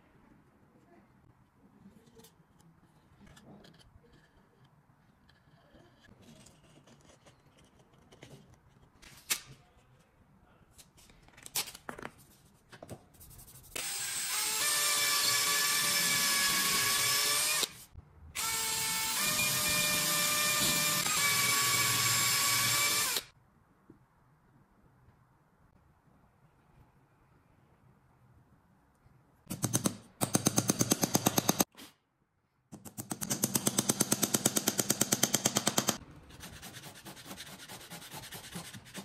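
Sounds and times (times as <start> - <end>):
electric drill running: 18.4 - 23.3.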